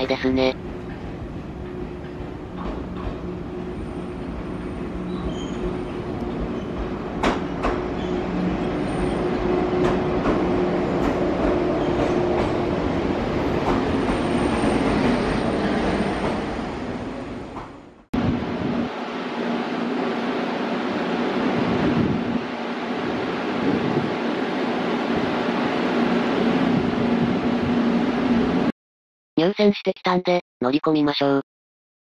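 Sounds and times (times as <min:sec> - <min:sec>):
train rolling rumble: 0:00.6 - 0:28.7
high brake squeal: 0:05.1 - 0:05.7.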